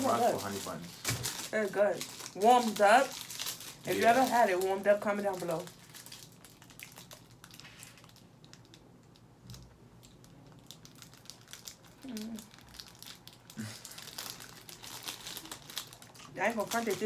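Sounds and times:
plastic wrapper crinkling: 0:00.0 - 0:17.0.

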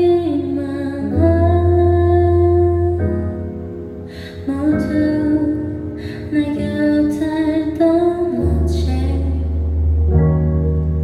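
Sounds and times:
woman singing into a microphone: 0:00.0 - 0:03.5, 0:04.1 - 0:09.7.

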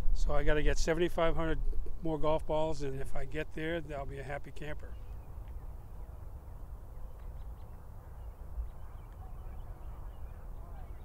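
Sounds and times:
bird calls: 0:04.7 - 0:11.0.

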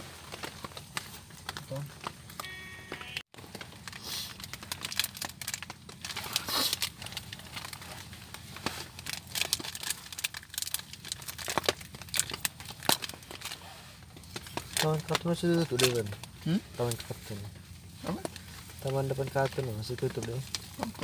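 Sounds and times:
plastic sachet crinkling and tearing: 0:03.4 - 0:13.6, 0:14.2 - 0:17.4, 0:18.1 - 0:21.0.

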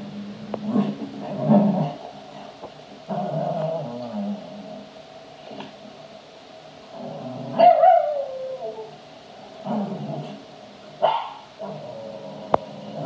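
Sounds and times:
dog whining: 0:07.5 - 0:09.0
dog barking: 0:07.6 - 0:08.2, 0:11.0 - 0:11.5.

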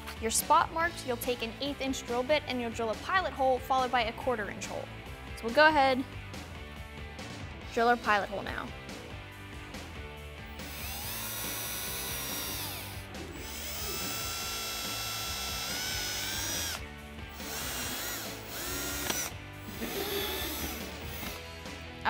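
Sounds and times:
background music: 0:00.0 - 0:22.0
cordless drill whining: 0:10.5 - 0:21.6.

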